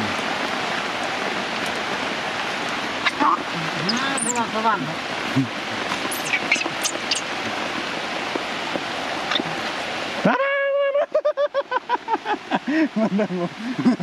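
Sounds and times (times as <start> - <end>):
heavy rain pouring: 0.0 - 14.0
brief high squeaks: 6.1 - 7.3.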